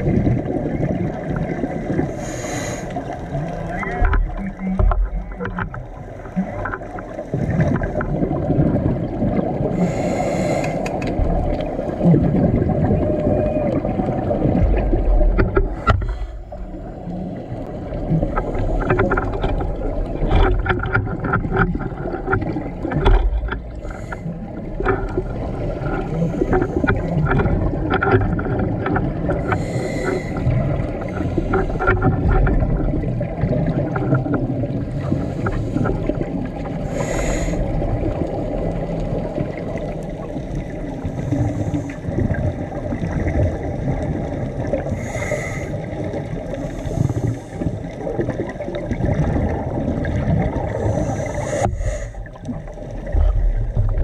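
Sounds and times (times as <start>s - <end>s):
diver exhaling bubbles: 0.0s - 54.0s
low underwater rumble: 0.0s - 54.0s
crackling clicks: 10.5s - 11.9s, 13.7s - 34.5s.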